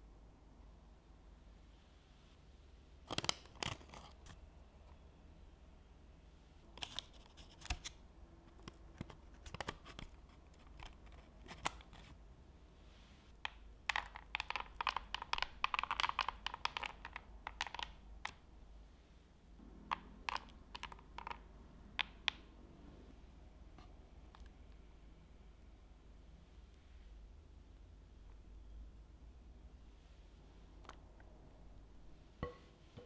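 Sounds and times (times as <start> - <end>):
chocolate chips pattering on biscuits: 13.4 - 18.4, 19.9 - 22.4
biscuits clicking: 13.4 - 18.5, 19.8 - 22.5.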